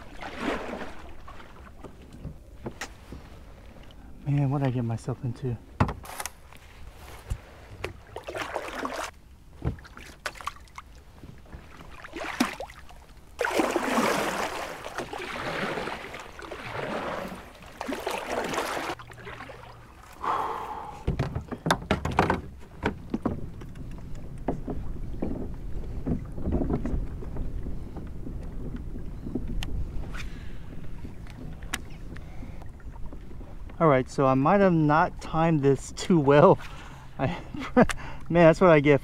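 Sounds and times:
water sloshing around hull: 0.0s - 37.8s
paddle and hull knocks: 5.8s - 6.2s, 7.2s - 10.6s, 21.0s - 29.8s.

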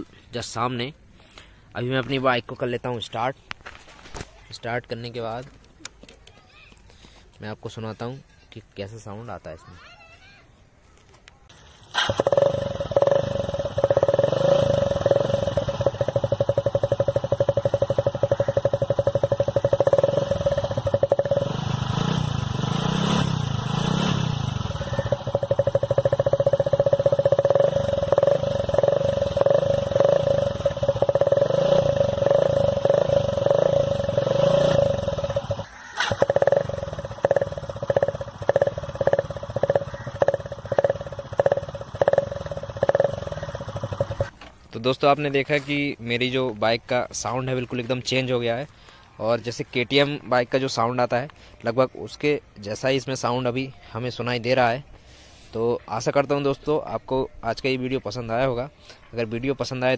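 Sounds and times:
motorcycle engine running: 11.6s - 44.3s.

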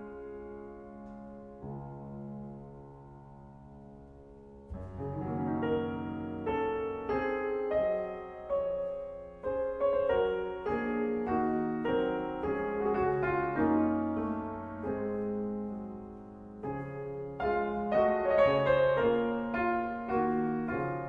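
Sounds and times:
solo piano piece: 0.0s - 21.0s.

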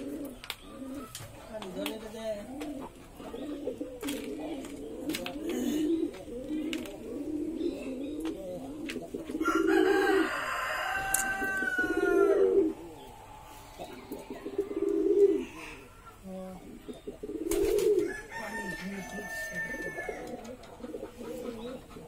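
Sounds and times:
pigeons cooing: 0.0s - 22.0s
rooster crowing: 9.4s - 12.8s, 18.0s - 20.5s.

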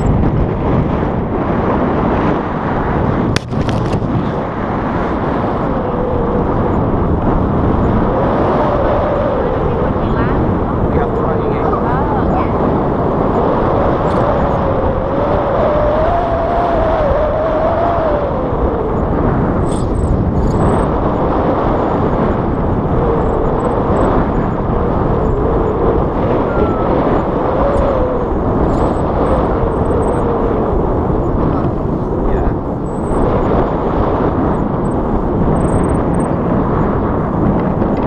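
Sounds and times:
heavy wind noise on microphone: 0.0s - 38.0s
faint wavering whistle: 26.3s - 28.1s.

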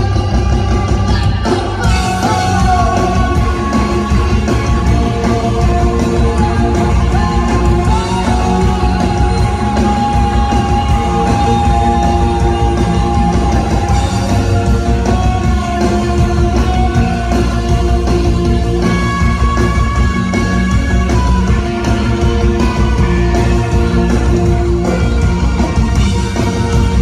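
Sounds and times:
drums: 0.0s - 27.0s
electric guitar: 0.0s - 27.0s
woman singing: 1.1s - 14.2s.

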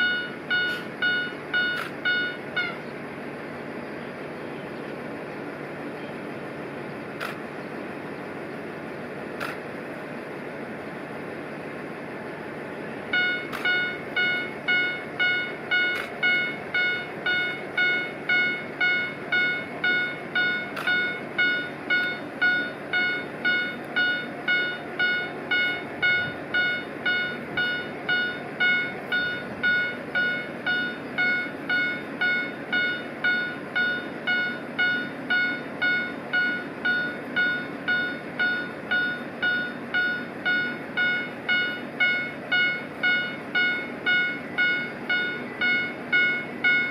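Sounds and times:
level crossing warning bell: 13.2s - 46.9s.

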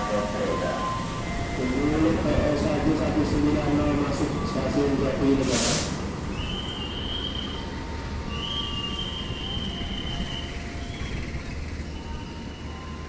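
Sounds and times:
train rumbling: 0.0s - 13.0s
wheel squeals on rails: 5.4s - 13.0s.

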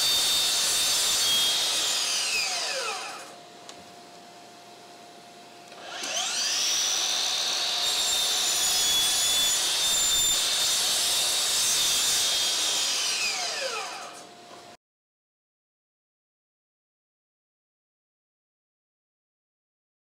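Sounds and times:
miter saw whining cutting wood: 0.0s - 3.4s, 5.7s - 14.3s.

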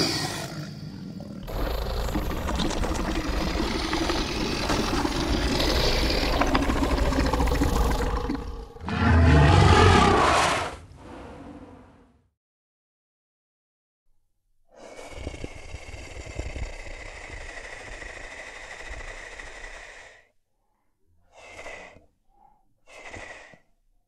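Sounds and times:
dinosaur roar: 0.0s - 12.0s.

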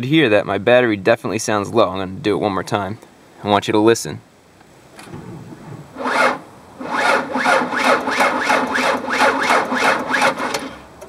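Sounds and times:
starter motor cranking slowly: 6.0s - 11.0s.

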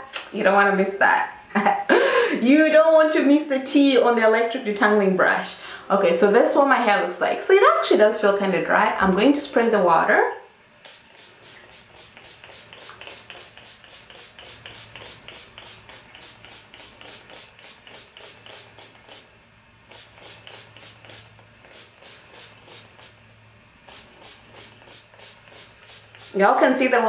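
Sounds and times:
spray bottle squirts: 10.8s - 19.3s, 19.9s - 23.2s, 23.9s - 26.4s.

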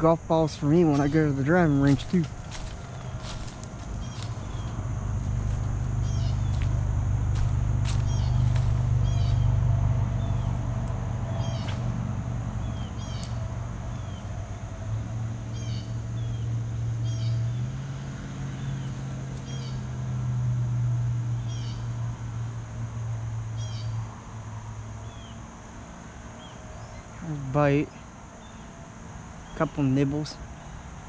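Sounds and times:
low steady drone: 0.0s - 17.6s.

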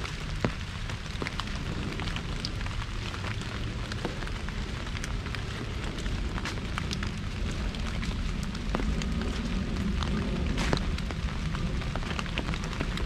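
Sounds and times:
rain falling on an umbrella: 0.0s - 13.0s.

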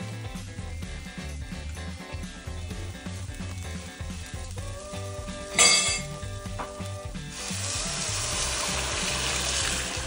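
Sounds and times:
background music: 0.0s - 10.0s
water pouring into metal pot: 7.3s - 10.0s.

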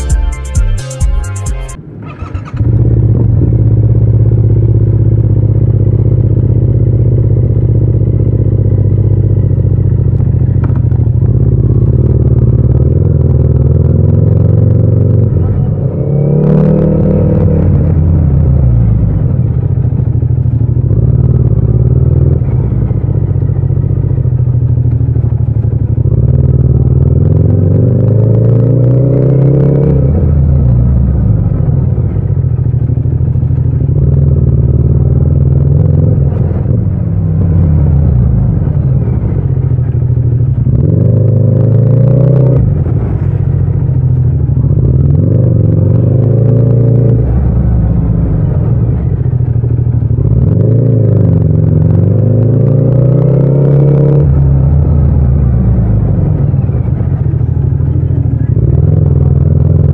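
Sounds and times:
motorcycle engine revving: 0.0s - 1.0s, 1.6s - 59.9s.

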